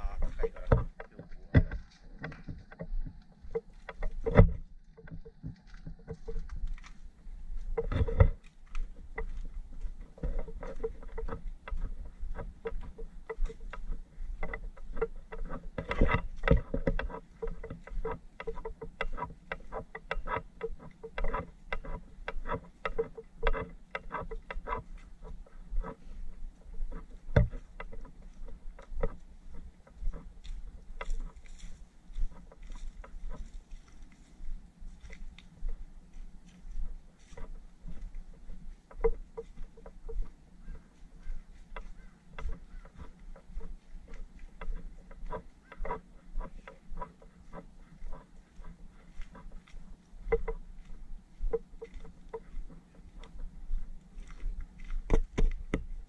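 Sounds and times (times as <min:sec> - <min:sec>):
camera handling rumble: 0:00.0 - 0:56.0
footsteps on dry leaves: 0:29.2 - 0:38.8, 0:39.4 - 0:46.0.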